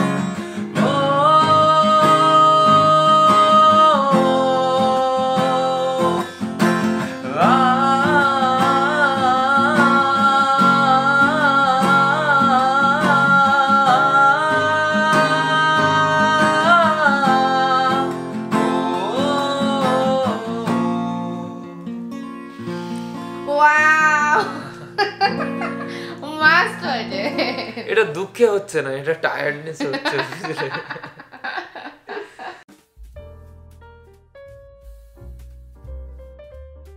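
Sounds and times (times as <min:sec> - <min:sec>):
acoustic guitar strumming: 0:00.0 - 0:28.2.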